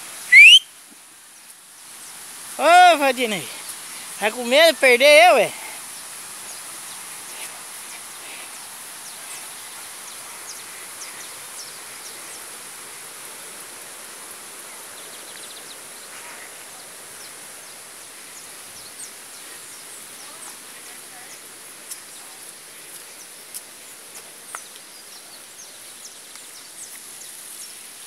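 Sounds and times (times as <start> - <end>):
short high chirps: 0.3 - 0.7.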